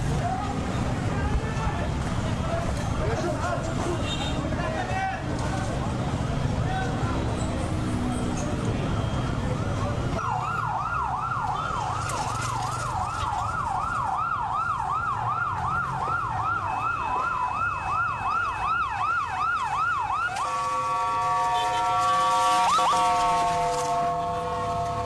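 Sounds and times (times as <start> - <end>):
siren steady held tone: 12.8 - 25.0.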